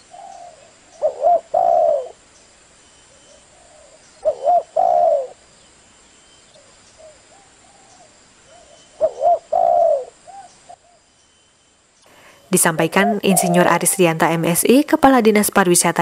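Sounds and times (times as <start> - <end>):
doves cooing: 0.0 - 2.2, 3.1 - 5.4, 6.5 - 11.0, 12.6 - 14.6.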